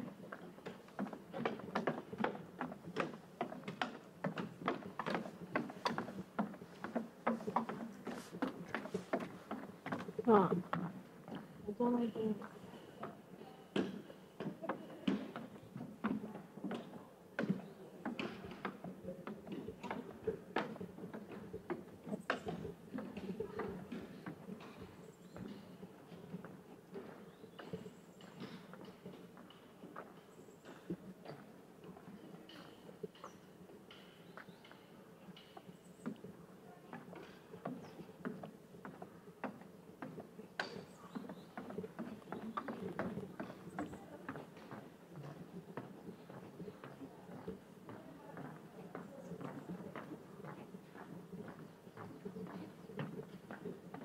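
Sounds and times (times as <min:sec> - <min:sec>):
footsteps on hard surface: 0:00.7 - 0:12.6.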